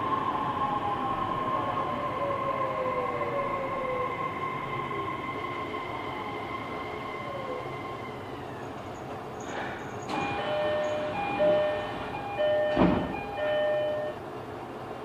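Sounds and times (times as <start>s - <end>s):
train motor high whine: 9.5s - 14.2s
two-tone electronic chime: 10.2s - 14.2s
sharp clunk: 12.7s - 13.2s.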